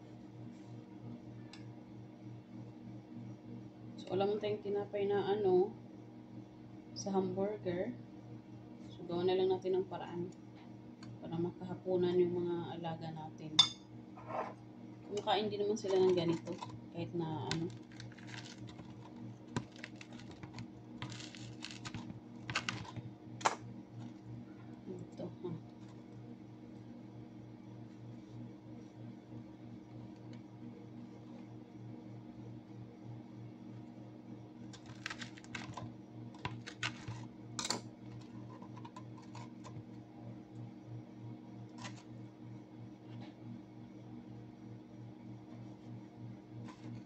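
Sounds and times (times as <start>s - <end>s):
steady low hum: 0.0s - 47.0s
bread rolls crackling on tray: 15.7s - 24.3s, 34.8s - 37.3s, 41.8s - 42.2s.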